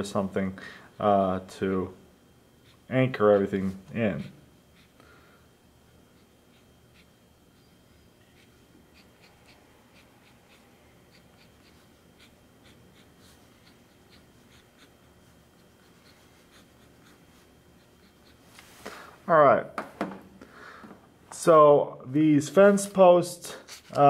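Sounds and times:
pen scratching on paper: 6.1 - 7.7, 8.3 - 18.4.

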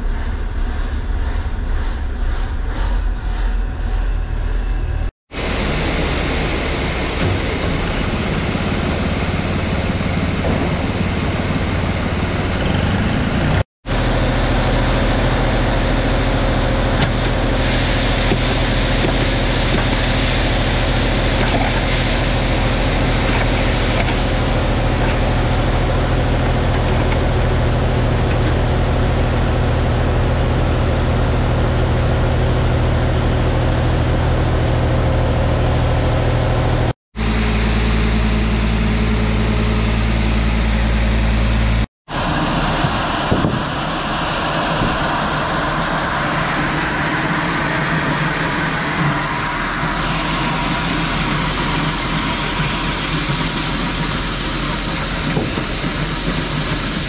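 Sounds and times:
tractor engine running: 0.0 - 57.0
grain pouring hiss: 15.2 - 28.0, 42.1 - 57.0.

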